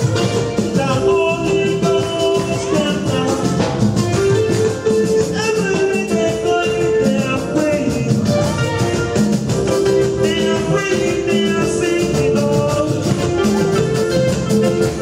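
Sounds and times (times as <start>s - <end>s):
man singing into a microphone: 0.0s - 4.0s, 4.6s - 9.1s, 9.7s - 14.9s
conga drums: 0.0s - 15.0s.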